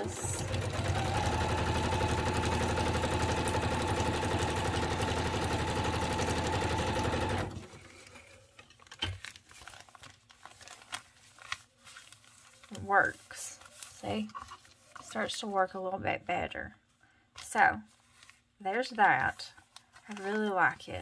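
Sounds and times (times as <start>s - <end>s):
sewing machine stitching: 0.0s - 7.8s
fabric rustling: 7.9s - 15.3s, 17.8s - 21.0s.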